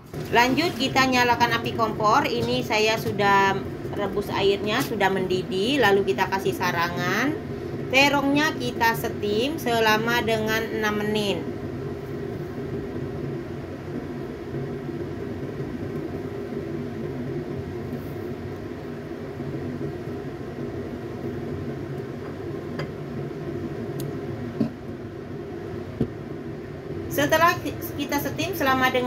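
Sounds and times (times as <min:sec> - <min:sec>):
low mechanical hum: 0:00.0 - 0:29.0.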